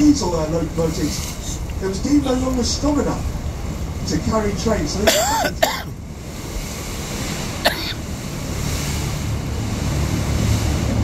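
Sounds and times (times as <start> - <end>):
wind rumbling on microphone: 0.0 - 5.0, 5.6 - 11.0
river boat engine noise: 0.0 - 11.0
water around boat: 0.0 - 11.0.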